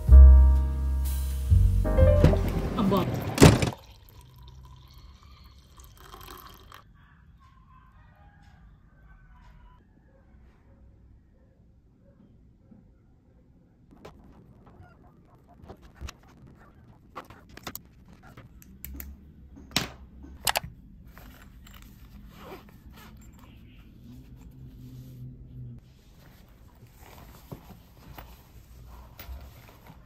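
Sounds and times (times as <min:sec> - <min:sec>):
zipper running: 0:21.1 - 0:23.6.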